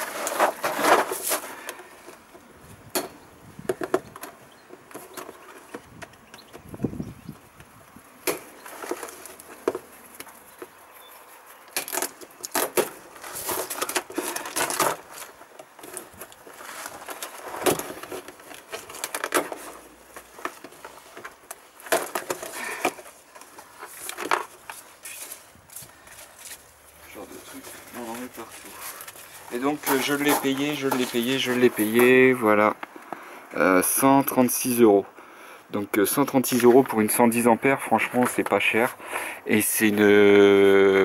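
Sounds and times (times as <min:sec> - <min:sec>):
packing peanuts rustling: 0:11.5 - 0:32.4.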